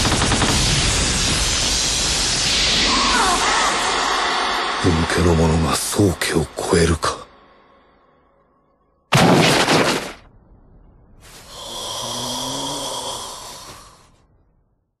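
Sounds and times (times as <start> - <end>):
loud rush of noise: 0.0 - 7.9
rushing sound with hum: 0.0 - 8.1.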